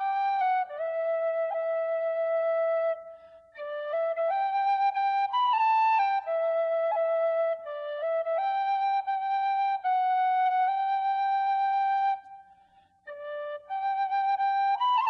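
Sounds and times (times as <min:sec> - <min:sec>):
flute-like instrument long notes: 0:00.0 - 0:15.0.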